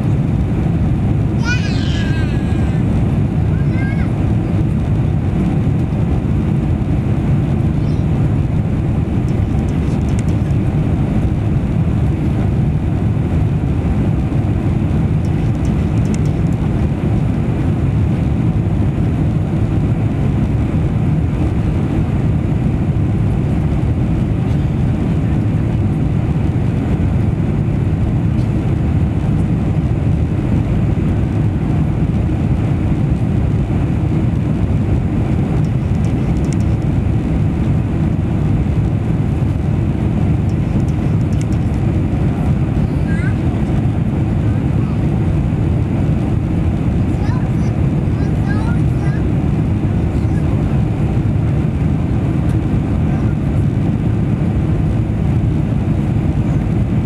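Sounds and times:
airplane cabin engine rumble: 0:00.0 - 0:57.0.

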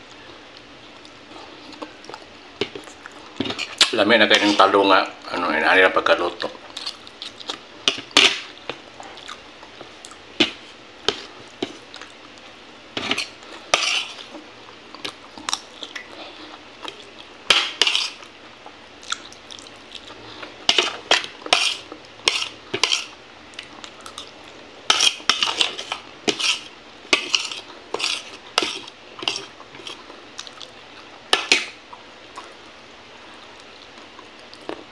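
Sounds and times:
metal spoon scraping a plate: 0:13.0 - 0:14.2, 0:20.7 - 0:23.1, 0:24.9 - 0:30.0.

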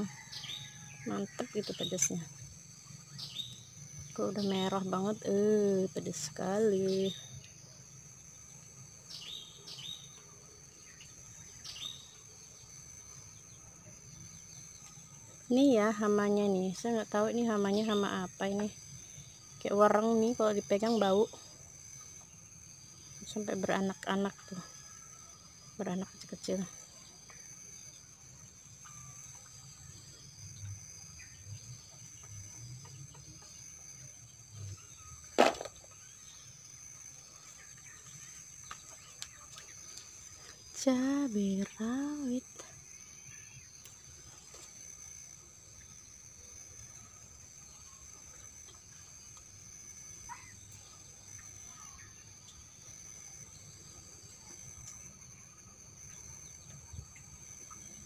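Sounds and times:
high-pitched insect drone: 0:00.0 - 0:58.0
small bird chirping: 0:02.9 - 0:07.6
sharp thump: 0:35.4 - 0:35.8.

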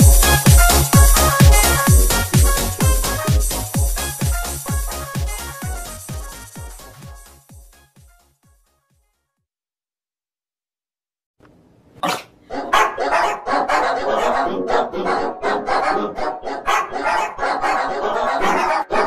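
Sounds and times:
dog barking rapidly: 0:12.0 - 0:14.5, 0:15.8 - 0:19.0.

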